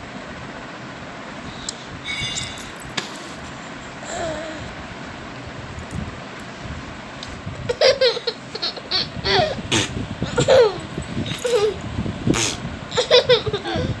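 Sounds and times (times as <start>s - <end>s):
toddler laughing: 7.7s - 11.9s, 12.9s - 14.0s.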